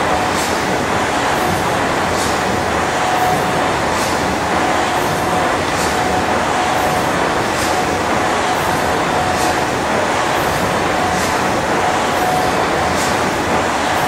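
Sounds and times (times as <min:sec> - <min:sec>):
steam engine clatter and rumble: 0:00.0 - 0:14.0.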